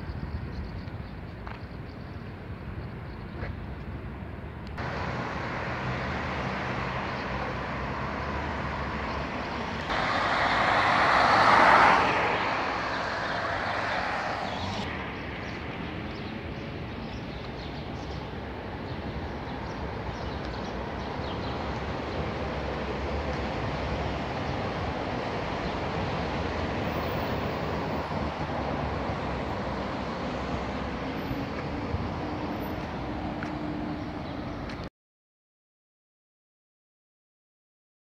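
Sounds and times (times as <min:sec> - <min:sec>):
low hum of traffic: 0:00.0 - 0:34.9
car passing close by: 0:04.8 - 0:14.9.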